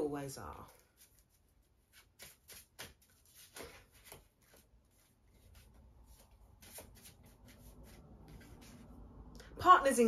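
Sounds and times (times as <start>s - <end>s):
cards being shuffled: 0.9s - 8.9s.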